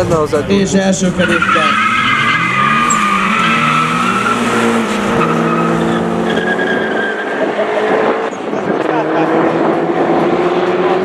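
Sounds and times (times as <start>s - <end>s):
car engines accelerating hard: 0.0s - 11.0s
tyre squeal: 1.1s - 7.6s.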